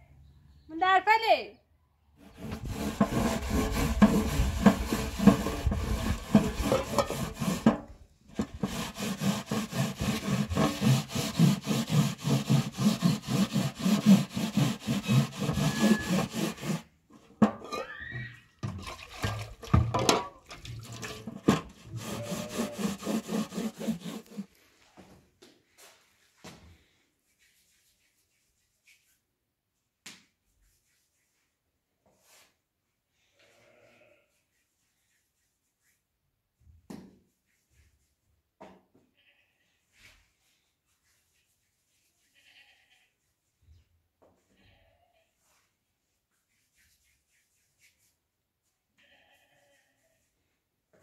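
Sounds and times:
metal griddle scrubbed by hand: 0:02.2 - 0:16.9, 0:21.0 - 0:24.5.

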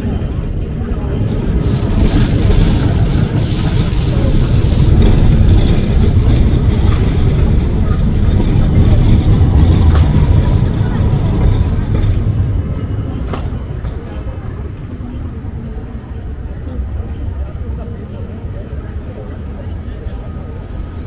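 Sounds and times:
heavy vehicle rumbling: 0:00.0 - 0:14.4
city street traffic: 0:00.0 - 0:21.0
loud hiss: 0:01.6 - 0:05.5.

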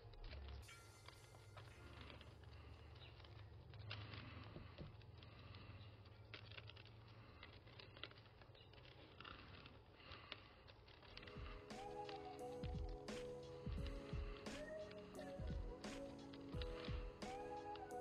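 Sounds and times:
root hook scratching soil: 0:01.8 - 0:11.2.

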